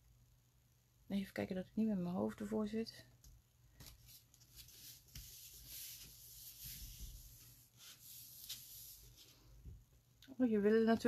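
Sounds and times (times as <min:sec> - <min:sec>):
paper card rustling on a mat: 0:03.7 - 0:09.8.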